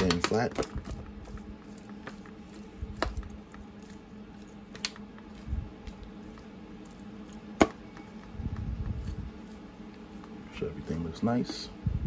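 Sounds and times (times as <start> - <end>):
tongs tapping foil pan: 0.0 - 0.7
meat squishing: 0.0 - 11.7
low steady hum: 0.0 - 12.0.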